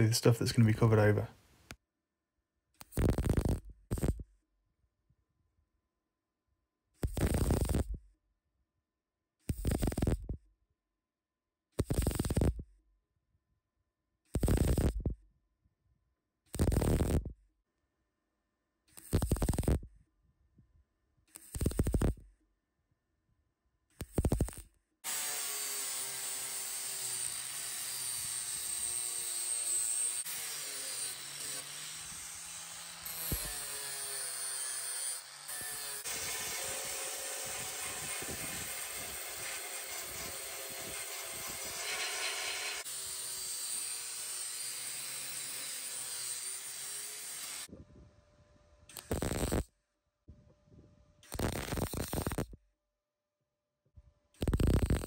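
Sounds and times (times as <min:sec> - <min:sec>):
angle grinder grinding steel: 0:25.0 - 0:47.7.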